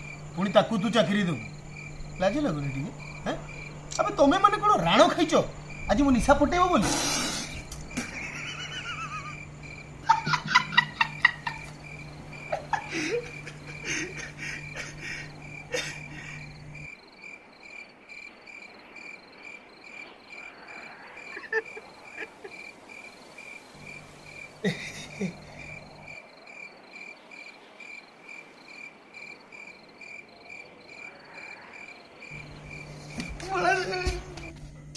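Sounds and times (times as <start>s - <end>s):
crickets chirping: 0.0s - 34.9s
man laughing hard: 8.0s - 16.5s, 21.2s - 22.6s, 24.6s - 25.7s.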